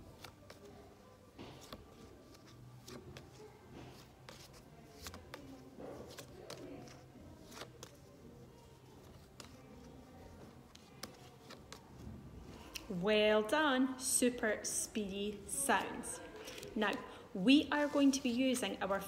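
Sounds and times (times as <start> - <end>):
paper flashcards flicking: 4.0 - 8.1, 9.1 - 12.0.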